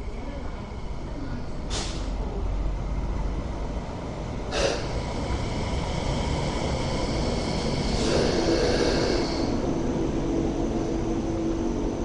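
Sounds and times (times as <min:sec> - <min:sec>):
light rail train rumble: 0:00.0 - 0:12.0
short hisses: 0:01.7 - 0:02.2.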